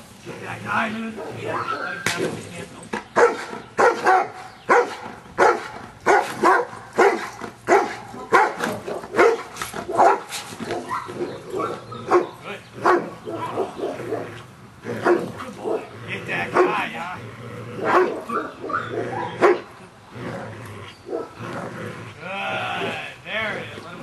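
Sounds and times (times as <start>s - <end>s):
dog barking: 1.2s - 1.9s, 3.2s - 14.3s, 15.0s - 15.9s, 16.5s - 16.8s, 17.8s - 19.7s, 21.1s - 21.3s.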